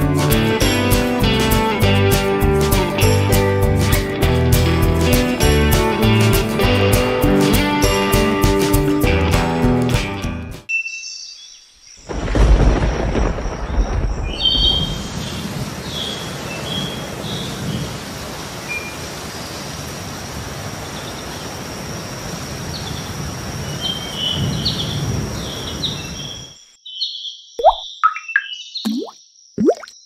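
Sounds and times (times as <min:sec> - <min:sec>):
steady rain falling: 0:12.0 - 0:26.4
thunder rumble: 0:12.1 - 0:16.0
birds chirping: 0:22.8 - 0:30.0.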